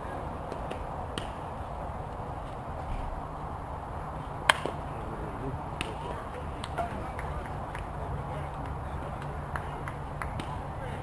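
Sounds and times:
sharp crack: 0:00.5 - 0:01.5, 0:04.4 - 0:04.9.

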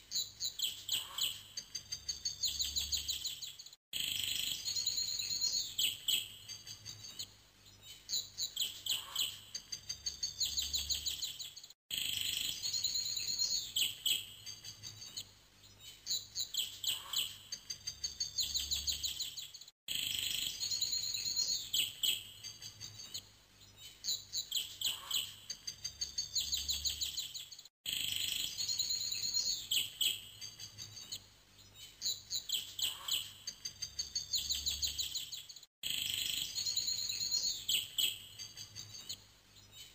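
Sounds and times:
birdsong chirps and trills: 0:00.0 - 0:39.9.

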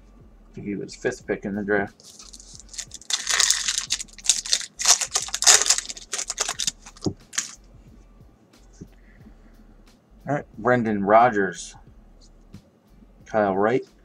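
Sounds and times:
foil wrapper crinkling: 0:02.0 - 0:07.6.

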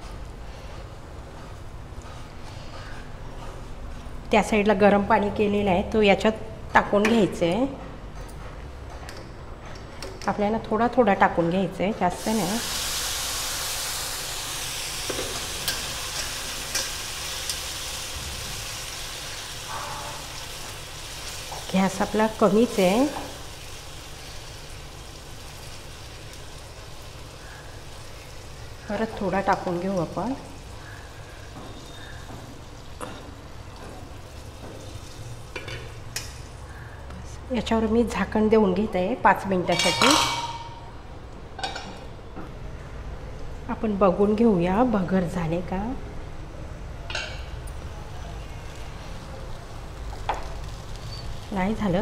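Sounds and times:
water sizzling in frying pan: 0:12.2 - 0:31.6, 0:48.6 - 0:52.0.

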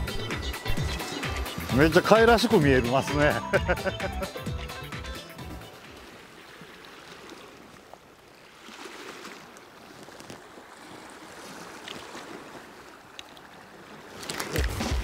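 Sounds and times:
wind: 0:00.0 - 0:15.0
small waves washing against rocks: 0:05.8 - 0:15.0.

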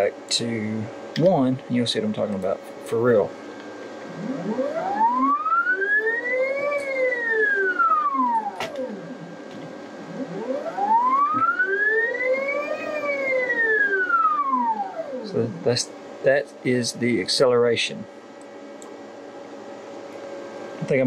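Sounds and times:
stepper motor whine rising and falling: 0:04.0 - 0:15.8.

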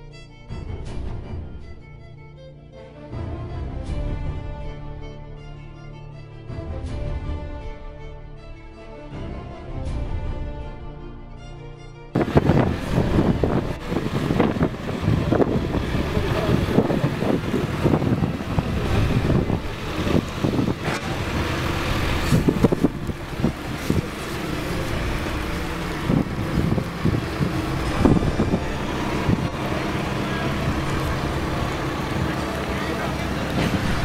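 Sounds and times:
wind buffeting microphone: 0:12.2 - 0:34.0.

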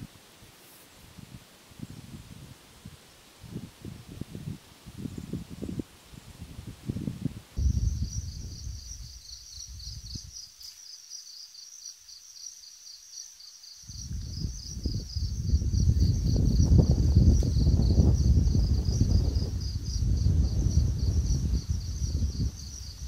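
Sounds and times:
wind rumble on microphone: 0:00.0 - 0:10.4, 0:13.9 - 0:23.0
crickets chirping: 0:03.2 - 0:23.0.

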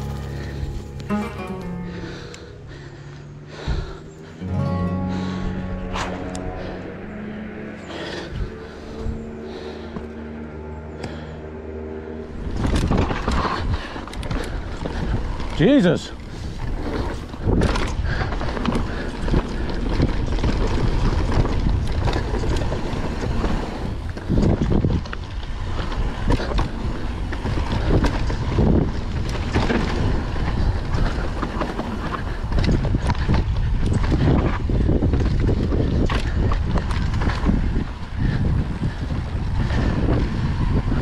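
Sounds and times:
tyres rumbling over dirt: 0:00.0 - 0:10.2, 0:12.2 - 0:41.0
wind buffeting microphone: 0:12.2 - 0:41.0.

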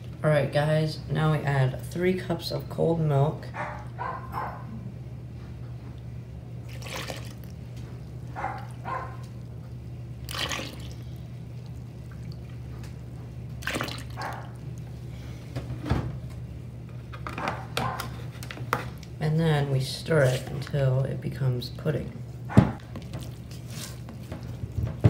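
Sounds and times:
milk pouring into metal bowl: 0:06.7 - 0:07.6, 0:10.2 - 0:12.6.

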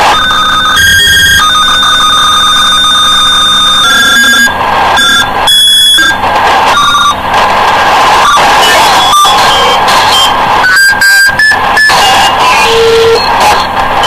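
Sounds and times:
electronic alarm tones: 0:00.0 - 0:07.2, 0:08.2 - 0:13.7
dense noise: 0:00.0 - 0:14.0.

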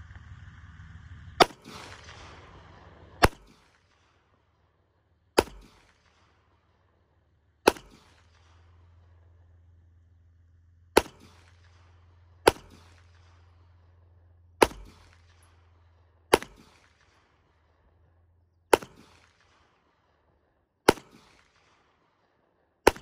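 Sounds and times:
pistol shots with echo: 0:01.4 - 0:04.4, 0:05.3 - 0:07.0, 0:07.6 - 0:09.7, 0:10.9 - 0:14.0, 0:14.6 - 0:17.8, 0:18.7 - 0:23.0.

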